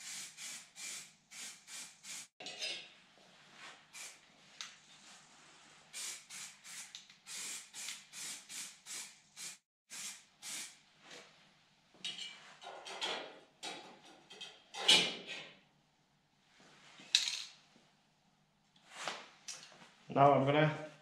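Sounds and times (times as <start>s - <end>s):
spray paint can spraying: 0.0s - 2.3s, 4.0s - 4.2s, 6.0s - 10.8s.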